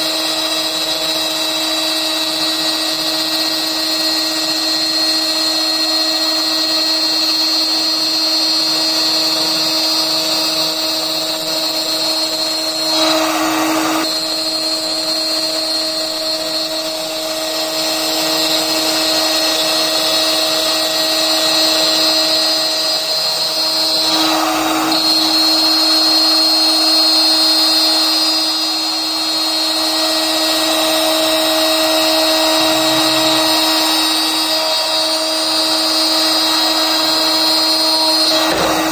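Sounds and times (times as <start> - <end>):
rush of cutting noise: 0.0 - 38.9
spindle high whine: 0.3 - 38.9.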